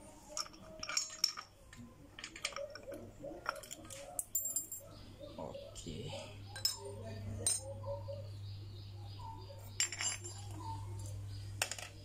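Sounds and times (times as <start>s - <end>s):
light metallic clinks: 0.3s - 5.0s, 9.7s - 11.9s.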